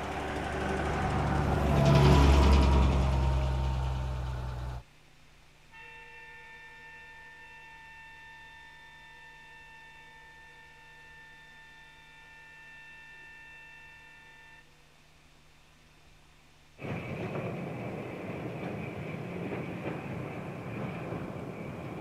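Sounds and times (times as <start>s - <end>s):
loud rushing noise: 0.0s - 4.8s
motor car high whine: 0.0s - 4.8s.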